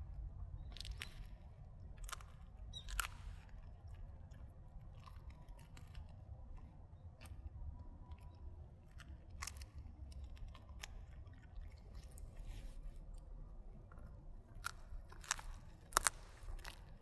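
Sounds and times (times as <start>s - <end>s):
dog crunching bones: 13.9s - 17.0s.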